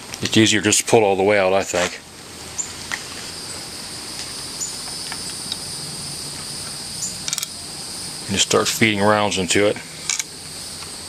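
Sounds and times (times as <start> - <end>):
high-pitched insect chirring: 2.5 - 11.0.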